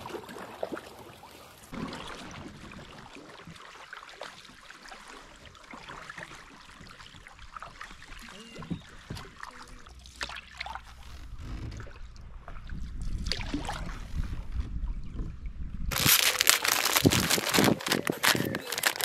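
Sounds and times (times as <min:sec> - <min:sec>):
paddle strokes in water: 0:00.0 - 0:15.3
water lapping on hull: 0:00.0 - 0:19.0
wind rumble on microphone: 0:11.1 - 0:19.0.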